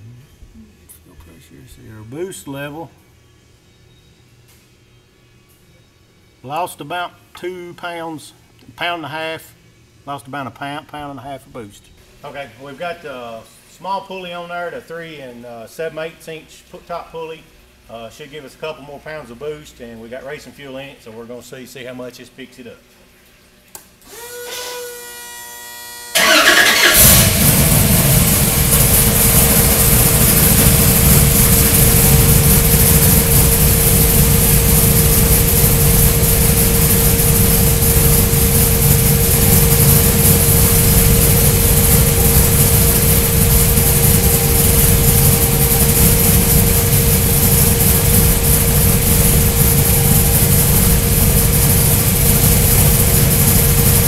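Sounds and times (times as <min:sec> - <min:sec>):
supercharger whine: 0:24.1 - 0:54.0
engine starting and idling: 0:26.2 - 0:54.0.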